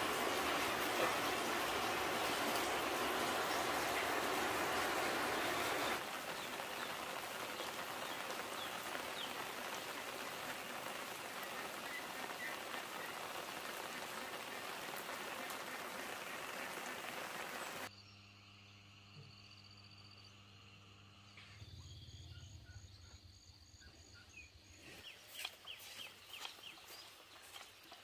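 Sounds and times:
steady rain hiss: 0.0s - 17.9s.

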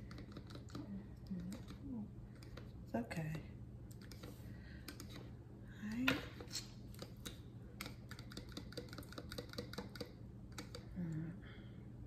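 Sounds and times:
person humming: 10.9s - 11.4s.

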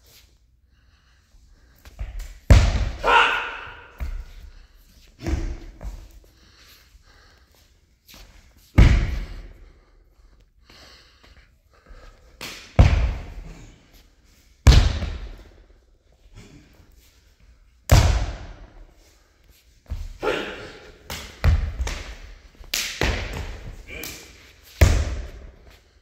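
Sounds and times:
echoing foot stamps and slaps: 1.9s - 4.6s, 5.2s - 6.3s, 8.2s - 9.6s, 11.9s - 13.6s, 14.6s - 15.6s, 17.9s - 18.9s, 19.8s - 25.9s.

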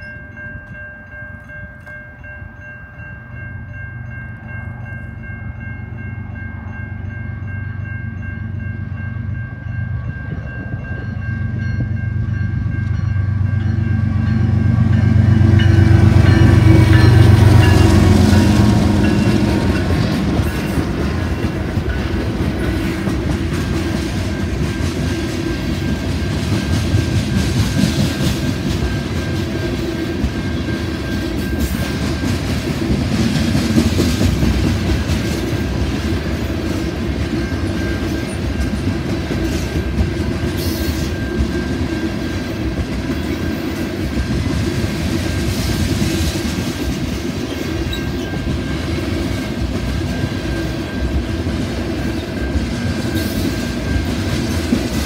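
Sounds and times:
crossing bell ringing: 0.0s - 55.0s
diesel locomotive engine: 0.0s - 55.0s
train wheel clatter: 10.0s - 55.0s.

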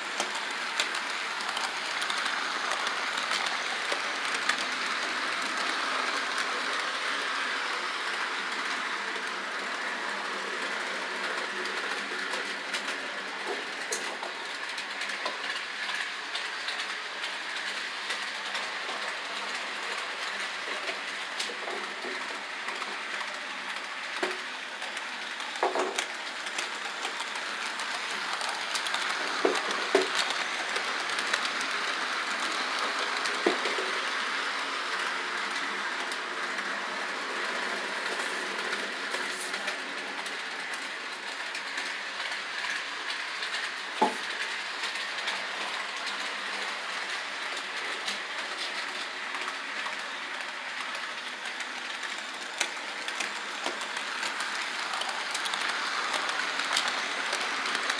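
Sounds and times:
model train rolling whir: 0.0s - 57.9s.

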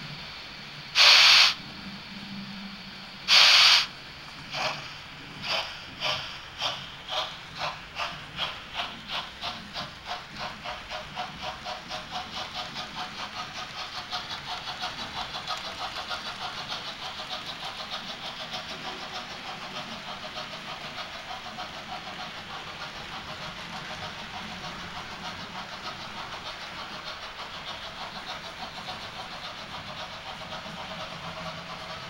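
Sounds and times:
model steam locomotive beat: 0.0s - 32.0s.

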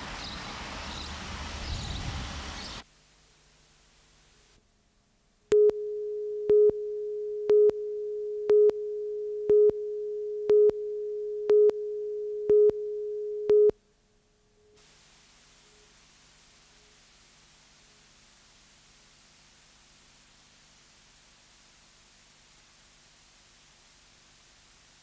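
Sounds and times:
tape hiss: 0.0s - 25.0s
short beeps: 5.5s - 13.8s
steady line-up tone: 5.5s - 13.8s.

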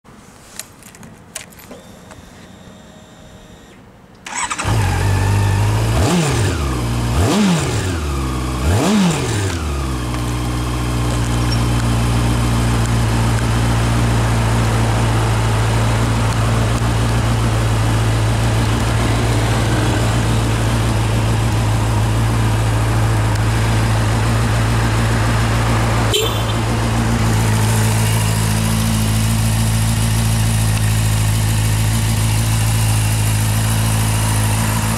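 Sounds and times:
ignition clicks: 4.1s - 4.9s
motorcycle engine revving and idling: 4.3s - 34.9s.

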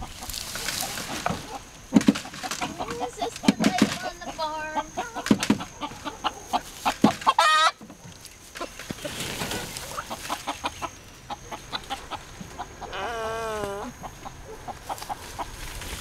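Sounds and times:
chickens clucking: 0.0s - 16.0s
chicken wavering call: 4.2s - 7.8s.

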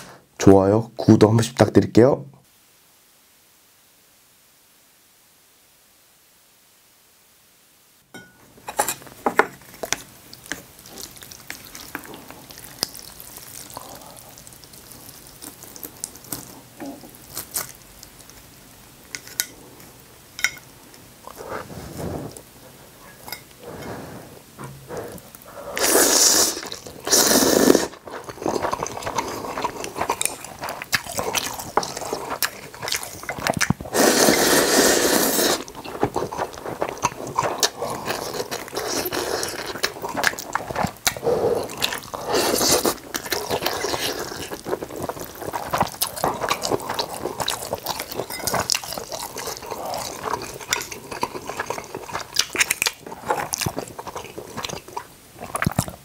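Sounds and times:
slurping broth: 21.3s - 56.0s
slurping noodles: 21.3s - 56.0s.

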